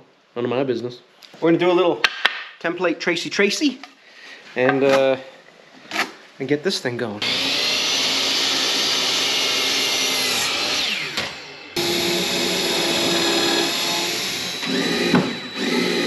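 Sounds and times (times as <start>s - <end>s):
cordless drill boring into wood: 7.2s - 16.0s
electric miter saw cutting: 7.2s - 16.0s.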